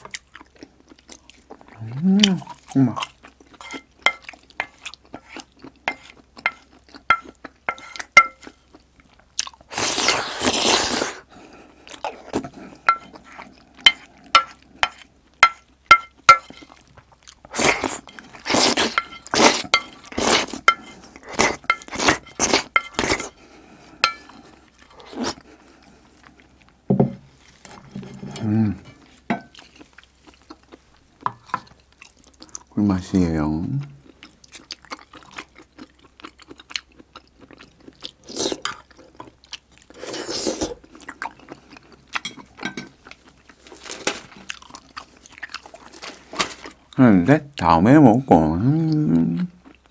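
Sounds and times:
spoon scraping a plate: 3.6s - 8.6s, 17.7s - 23.4s, 24.0s - 24.5s.

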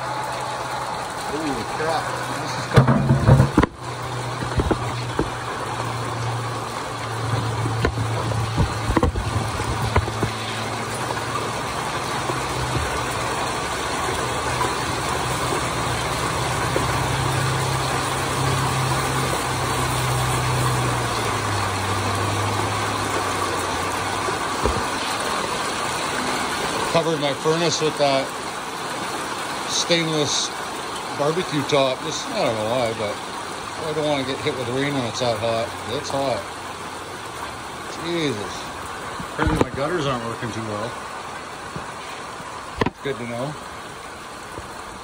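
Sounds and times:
heavy rain falling: 0.0s - 45.0s
light knocks: 7.3s - 10.4s.

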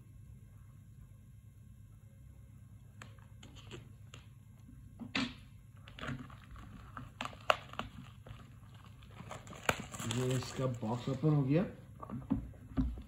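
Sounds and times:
plastic crinkling: 5.8s - 12.3s
knife slitting plastic shrink-wrap: 5.9s - 11.2s.

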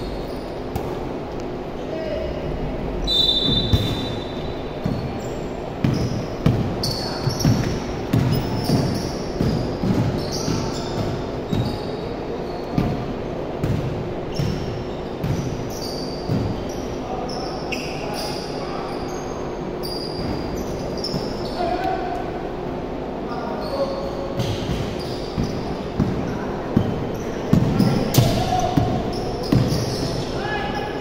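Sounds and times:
sneakers squeaking: 0.0s - 1.4s, 3.0s - 22.4s, 23.3s - 31.0s
basketball bouncing on wooden floor: 5.8s - 11.8s.

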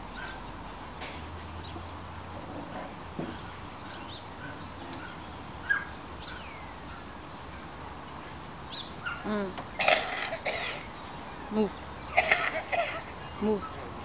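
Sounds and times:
small birds chirping: 0.0s - 2.2s, 3.2s - 14.0s
steady outdoor background: 0.0s - 14.0s.

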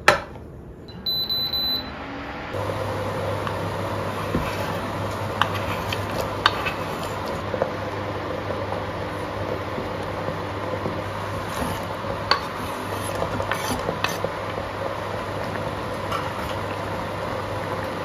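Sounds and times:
cooktop low hum: 0.0s - 18.0s
high electronic beep: 0.9s - 2.0s.

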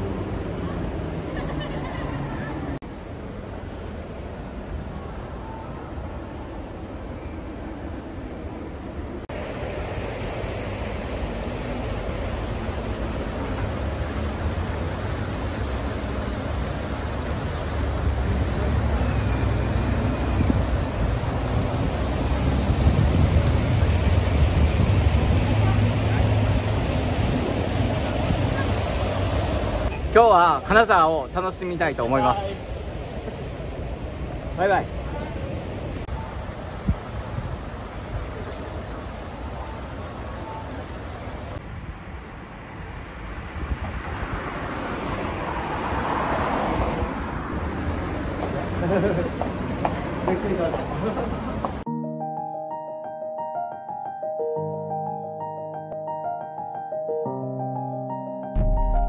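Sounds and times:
outdoor street ambience: 0.0s - 54.3s
car approaching on road: 10.4s - 30.1s
wind buffeting microphone: 20.0s - 30.1s.

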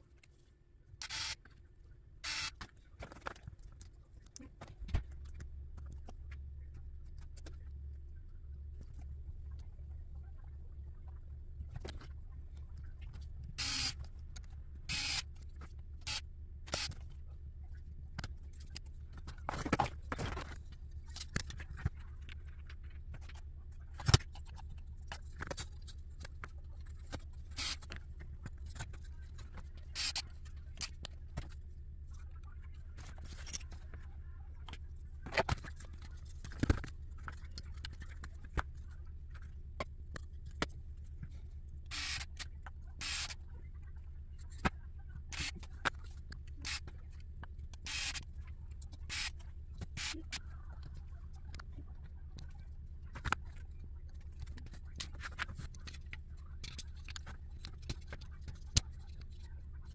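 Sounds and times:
steady low hum: 0.0s - 59.9s
small parts clicking and tapping: 17.8s - 59.9s.

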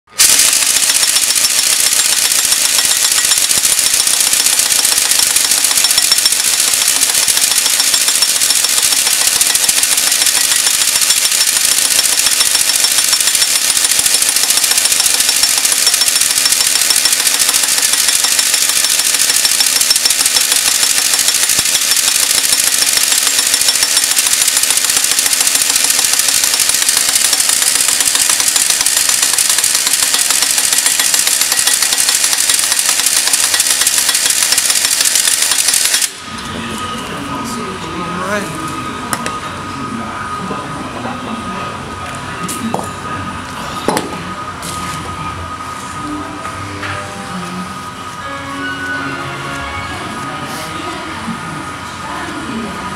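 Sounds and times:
pneumatic impact wrench hammering: 0.1s - 36.2s.

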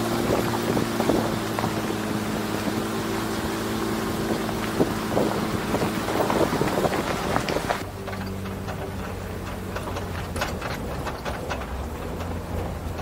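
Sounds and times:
truck engine humming: 0.0s - 13.0s
tyres on gravel: 0.0s - 13.0s
wind buffeting microphone: 0.0s - 13.0s.

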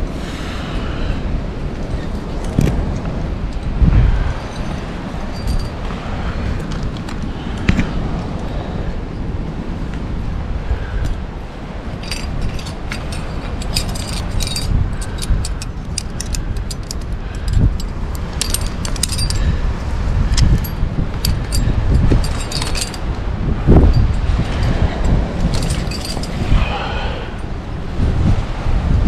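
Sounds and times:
steady low rumble: 0.0s - 29.0s
metal climbing gear clinking: 1.9s - 7.8s, 11.8s - 27.6s.

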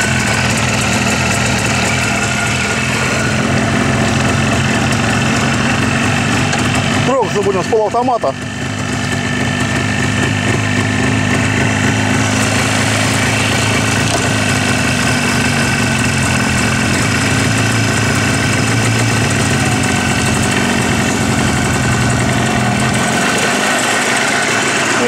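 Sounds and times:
motorcycle engine idling: 0.0s - 25.0s.

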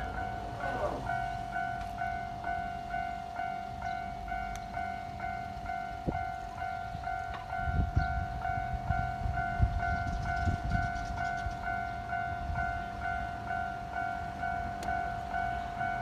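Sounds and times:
level-crossing warning bell ringing: 0.0s - 16.0s.

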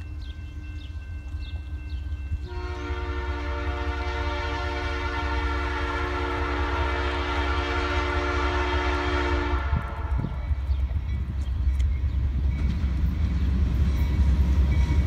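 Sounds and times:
locomotive air horn blast: 2.4s - 10.4s.

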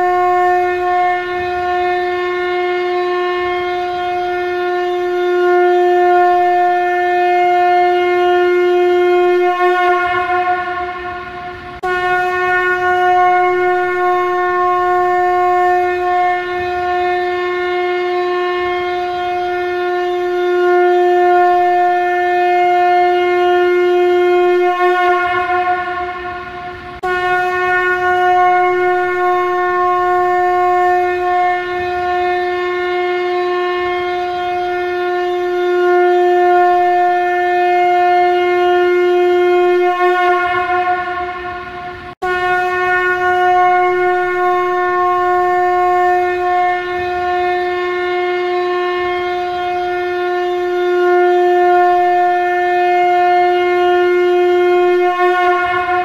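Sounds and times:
conch shell blasts: 0.0s - 56.0s.

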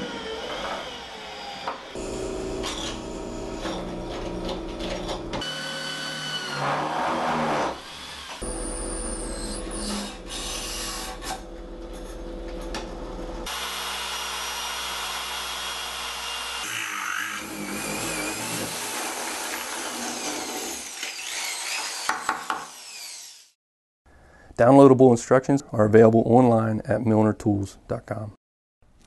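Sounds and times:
electric drill boring through metal: 5.4s - 11.4s, 13.5s - 23.6s.

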